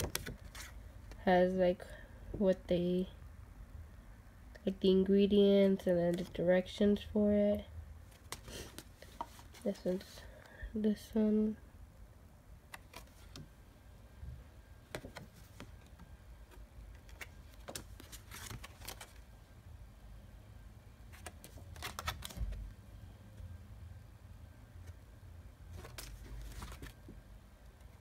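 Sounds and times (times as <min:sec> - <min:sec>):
cards rustling and tapping: 0:00.0 - 0:01.2, 0:08.1 - 0:09.8, 0:12.7 - 0:13.5, 0:14.9 - 0:19.2, 0:21.1 - 0:22.6, 0:25.7 - 0:27.2
faint low room hum: 0:00.0 - 0:28.0.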